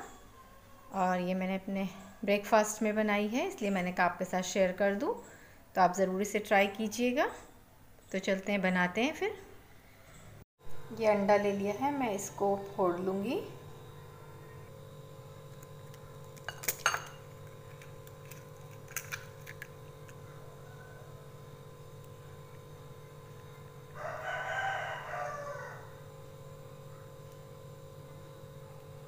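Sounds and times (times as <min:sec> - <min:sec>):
egg cracking on glass bowl: 0:15.6 - 0:20.2.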